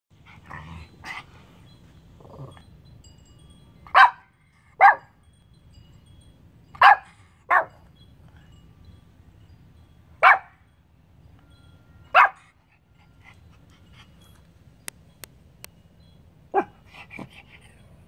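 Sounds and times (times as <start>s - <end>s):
small dog growling: 2.2s - 2.7s.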